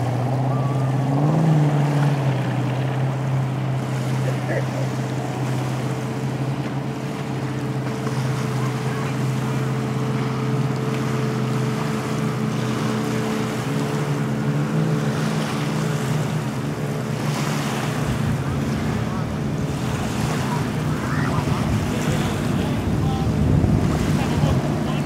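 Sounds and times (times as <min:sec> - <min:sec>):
boat engine drone: 0:00.0 - 0:25.0.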